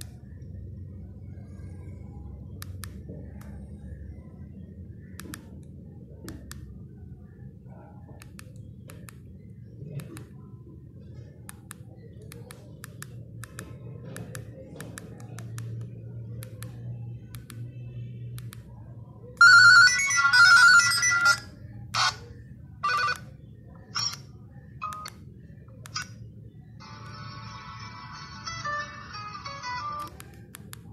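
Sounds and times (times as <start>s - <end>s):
faint keypad clicks: 8.1s - 10.5s, 11.4s - 18.7s
phone ringtone melody: 19.4s - 22.2s, 22.8s - 23.2s.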